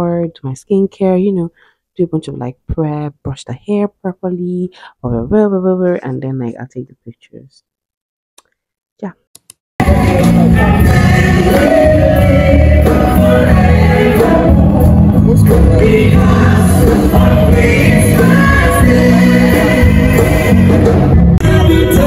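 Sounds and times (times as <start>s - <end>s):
mixed choir singing gospel: 9.8s - 22.0s.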